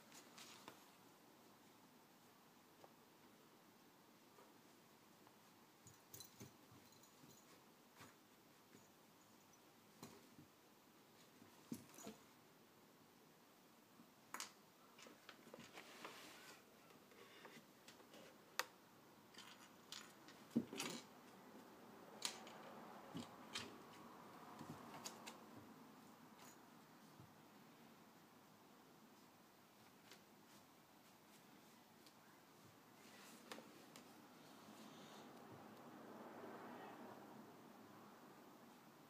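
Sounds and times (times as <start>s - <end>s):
soft rustle of a sheet: 0.0s - 2.4s, 15.6s - 16.8s, 29.0s - 35.3s
cloth rustling and scratching: 15.4s - 16.7s.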